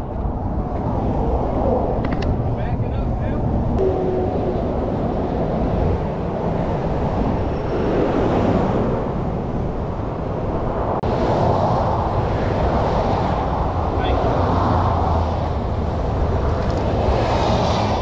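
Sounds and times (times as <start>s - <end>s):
traffic roaring past: 0.0s - 18.0s
large truck passing: 3.6s - 9.4s.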